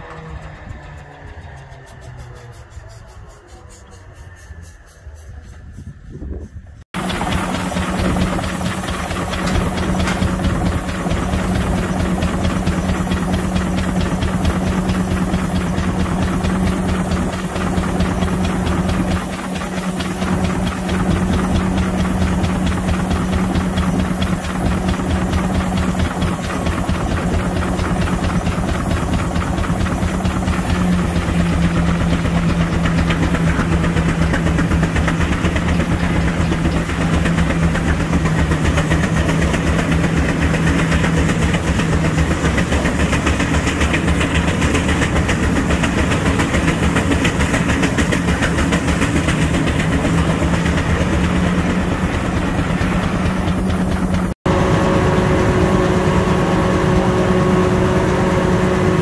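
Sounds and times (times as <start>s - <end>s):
steady hum: 7.0s - 40.5s
steam engine exhaust beat: 7.0s - 54.4s.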